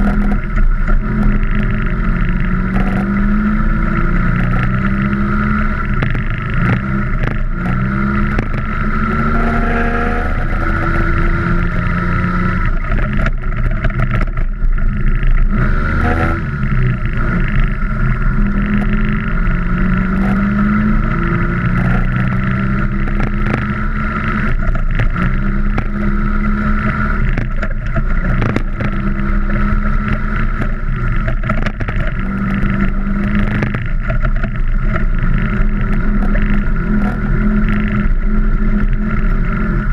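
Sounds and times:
scooter engine revving: 0.0s - 39.9s
knocks and rattles: 12.6s - 15.5s, 26.8s - 38.2s.

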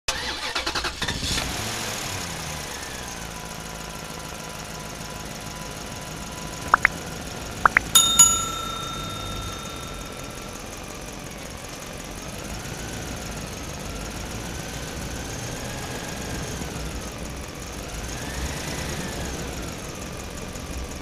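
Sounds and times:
bell ding ringing: 7.7s - 11.0s.

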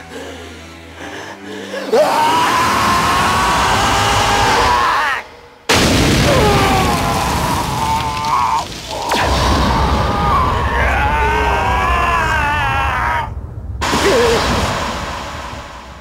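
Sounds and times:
deep rumble with booms: 5.7s - 16.0s
lightning crack: 5.7s - 16.0s.

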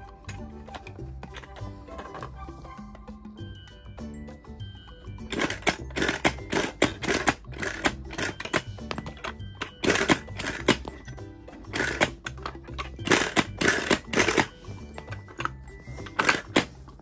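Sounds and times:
background music: 0.0s - 17.0s
plastic toy rattling: 5.3s - 11.0s, 11.7s - 16.7s.

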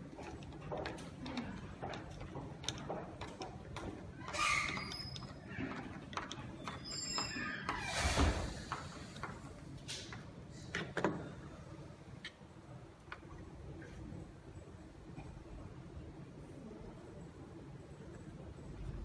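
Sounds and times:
high squeaks: 4.2s - 5.4s, 6.6s - 8.3s.

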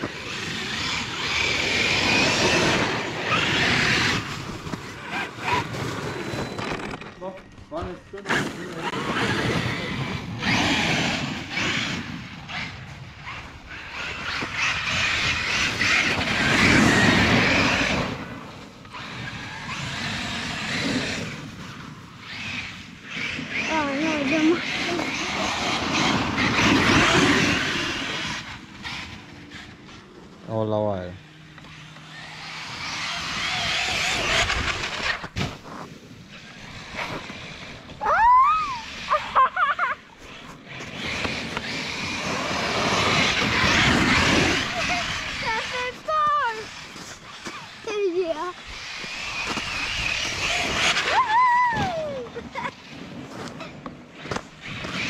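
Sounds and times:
electric toy truck motor whirring: 0.0s - 7.2s, 7.8s - 55.0s
tyres churning snow: 0.0s - 55.0s
child shrieking excitedly: 38.0s - 40.0s, 51.0s - 52.6s.

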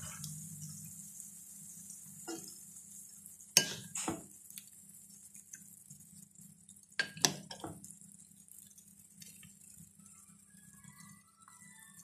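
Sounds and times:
faint sizzle in frying pan: 0.0s - 12.0s.

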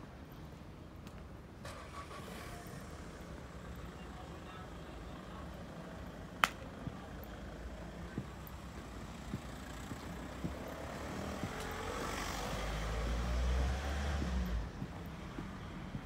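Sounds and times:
footsteps on paving: 7.8s - 16.0s.

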